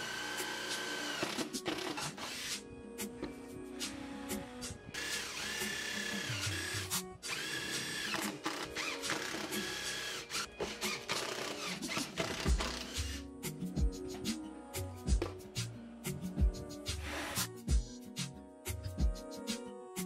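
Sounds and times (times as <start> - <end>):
power drill boring into wood: 0.0 - 2.6, 4.4 - 13.2.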